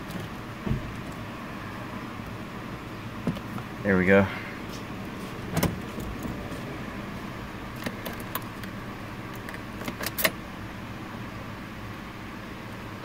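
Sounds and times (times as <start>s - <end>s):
steady low hum: 0.0s - 13.0s
ignition switch clicking: 7.7s - 10.4s.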